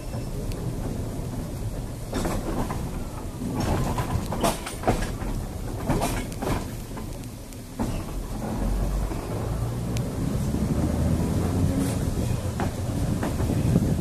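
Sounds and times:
knocks and rattles: 0:00.0 - 0:07.2
tram wheels rumbling on rail: 0:00.0 - 0:14.0.

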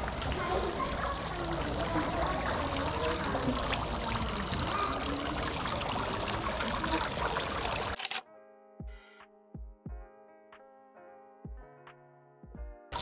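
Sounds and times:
faint voices: 0:00.0 - 0:08.0
running water splashing: 0:00.0 - 0:08.0.

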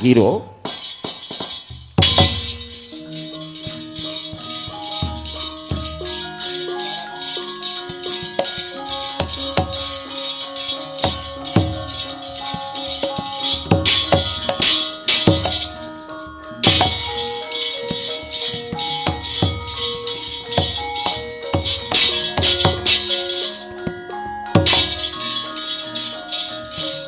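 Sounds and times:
metallophones playing steady notes: 0:00.0 - 0:27.0
sharp jingling clashes: 0:00.6 - 0:27.0
low drum strokes: 0:01.6 - 0:15.9.

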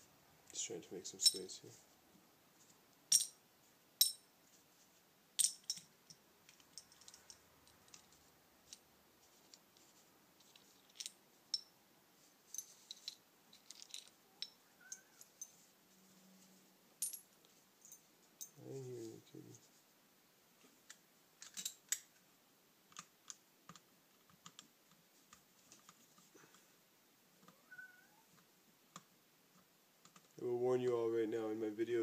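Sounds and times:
small metal parts clinking: 0:01.2 - 0:01.6, 0:03.1 - 0:03.4, 0:04.0 - 0:04.2, 0:05.4 - 0:08.0, 0:10.4 - 0:11.7, 0:12.5 - 0:15.6, 0:17.0 - 0:18.6.

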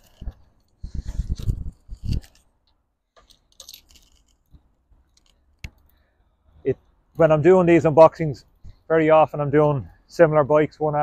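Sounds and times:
wind gusting on microphone: 0:00.2 - 0:02.3.

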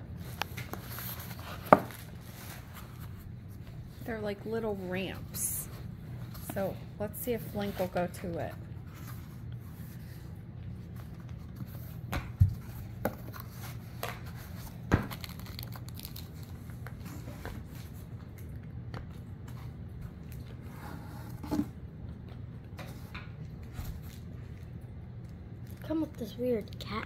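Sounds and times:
cardboard packaging crinkling: 0:13.2 - 0:17.4
packaging tearing: 0:15.1 - 0:16.6.

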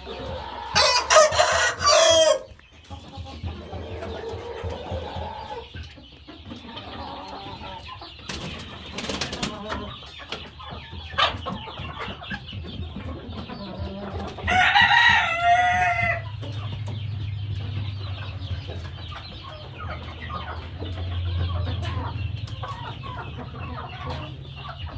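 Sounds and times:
chickens clucking: 0:00.0 - 0:24.9
rooster crowing: 0:00.7 - 0:02.5, 0:14.5 - 0:16.2.

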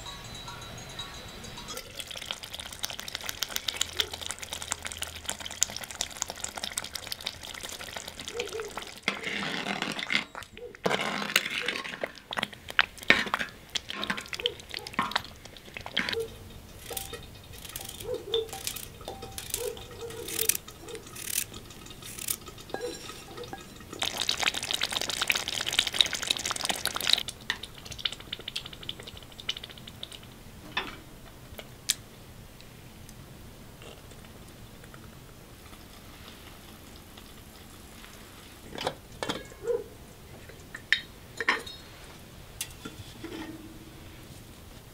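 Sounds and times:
spoon clinking against clay pot: 0:00.0 - 0:02.6, 0:13.1 - 0:24.5
wet stirring noise: 0:01.2 - 0:30.4, 0:34.2 - 0:44.3.

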